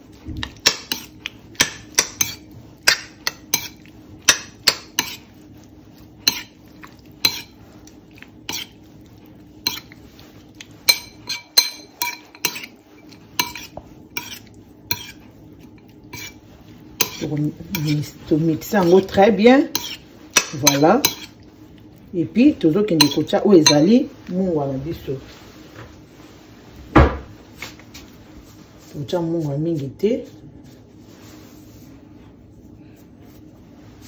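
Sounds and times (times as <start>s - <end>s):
metal utensil clinking bowl: 7.2s - 7.6s, 9.7s - 10.0s, 10.8s - 15.2s, 17.0s - 18.1s, 18.8s - 21.4s, 23.0s - 24.0s.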